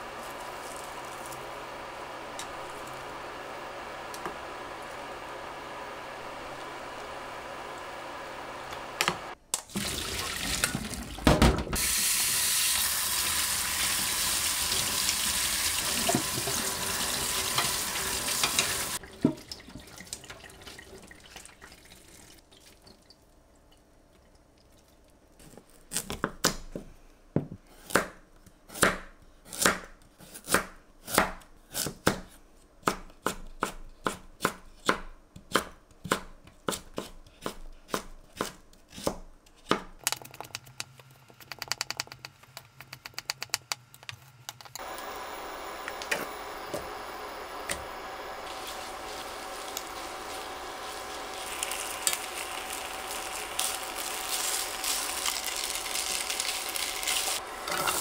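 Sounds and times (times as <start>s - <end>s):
tap water running: 8.6s - 23.2s, 44.8s - 58.0s.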